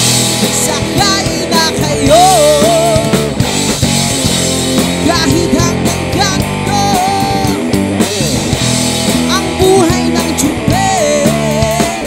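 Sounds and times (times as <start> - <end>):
bass guitar: 0.0 - 12.0
drums: 0.0 - 12.0
electric guitar: 0.0 - 12.0
man singing: 0.4 - 3.4, 4.9 - 7.8, 9.2 - 12.0.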